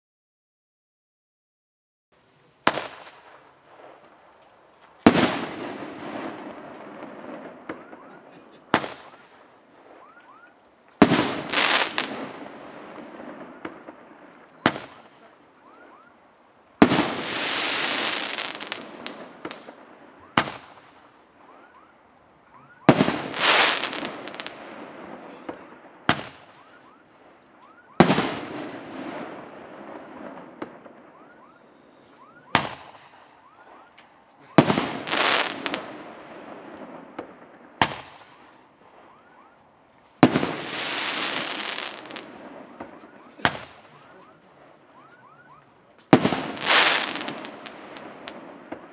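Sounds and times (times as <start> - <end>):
rushing firework burst: 16.8 - 19.7, 40.2 - 42.2.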